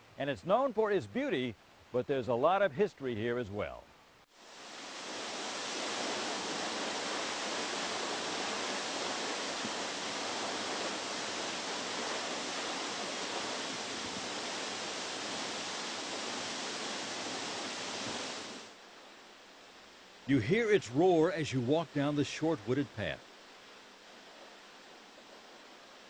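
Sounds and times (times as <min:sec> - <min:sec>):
waterfall roaring: 0:04.5 - 0:18.8.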